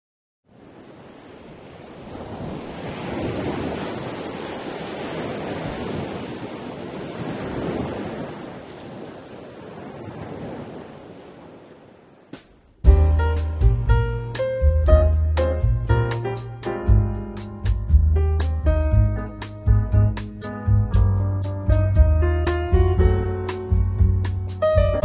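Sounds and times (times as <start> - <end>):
sea surf on a beach: 0.5 - 12.9.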